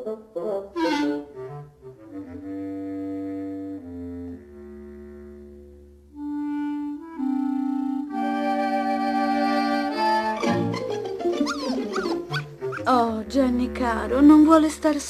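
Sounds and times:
orchestral film music: 0:06.1 - 0:15.0.

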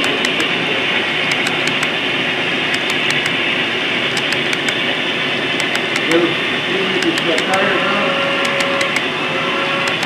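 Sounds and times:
steady rolling hiss: 0:00.0 - 0:08.6
model train wheels clicking: 0:01.3 - 0:01.9, 0:02.7 - 0:03.4, 0:04.2 - 0:04.8, 0:05.6 - 0:06.2, 0:07.0 - 0:07.6, 0:08.4 - 0:09.1.

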